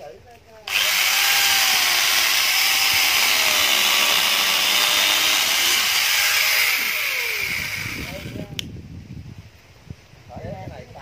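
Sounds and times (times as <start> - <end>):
electric chainsaw cutting log: 0.7 - 8.6.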